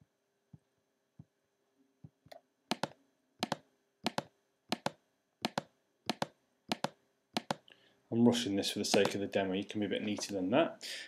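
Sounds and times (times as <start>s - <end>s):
computer mouse button clicking: 2.7s - 7.6s.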